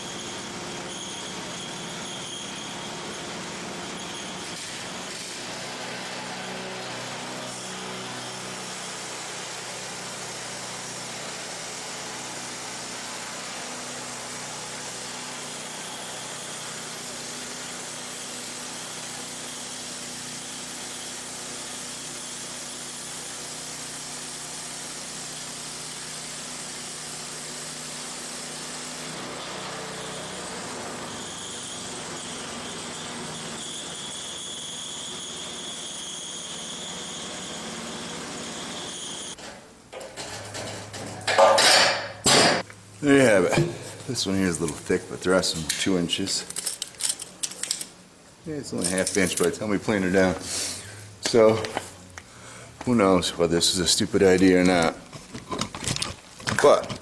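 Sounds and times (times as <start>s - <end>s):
high whine of free-running blade: 0.0s - 39.4s
band saw blade cutting wood: 3.6s - 37.7s, 52.9s - 55.8s.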